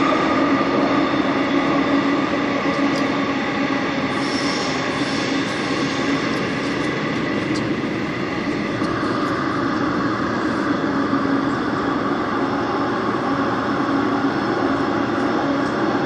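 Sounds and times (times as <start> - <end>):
constant hum: 0.0 - 16.0
wheels rumbling on rail: 0.0 - 16.0.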